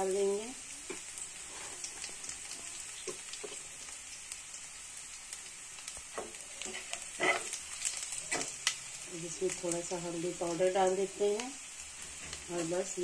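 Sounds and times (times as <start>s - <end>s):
spices sizzling in hot oil: 0.0s - 13.0s
small crackles in oil: 0.9s - 10.0s.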